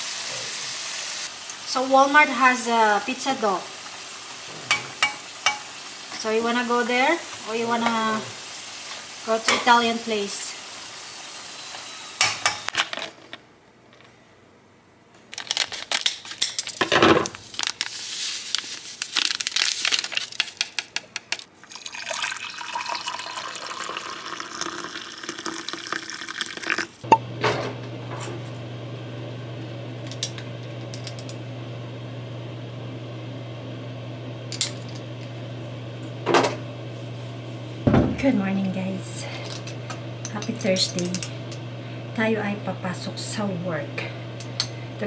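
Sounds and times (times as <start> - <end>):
water running from a tap: 21.7 - 26.8.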